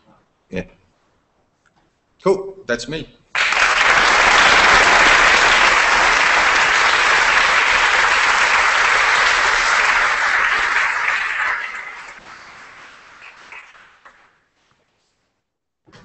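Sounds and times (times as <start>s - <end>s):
audience applauding: 3.3s - 14.4s.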